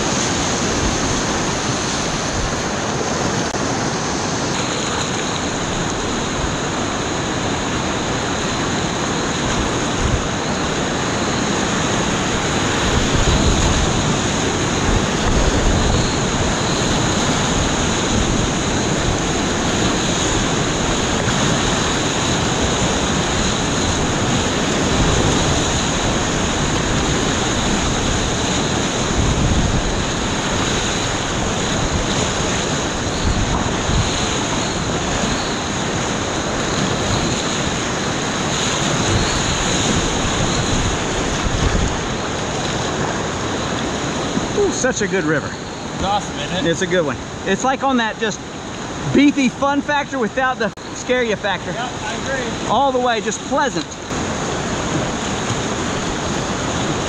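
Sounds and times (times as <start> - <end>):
water splashing: 0.0 - 57.0
whitewater rapids rushing: 0.0 - 57.0
wind buffeting microphone: 5.2 - 47.5.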